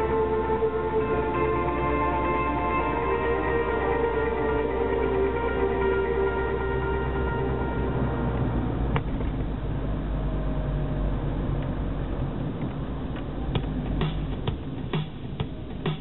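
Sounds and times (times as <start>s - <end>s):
car engine and road rumble: 0.0s - 16.0s
tyre noise on damp road: 7.1s - 16.0s.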